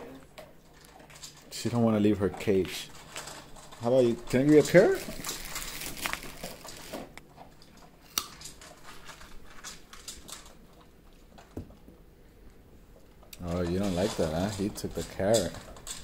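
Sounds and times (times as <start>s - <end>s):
rustling and scuffing: 4.7s - 7.2s.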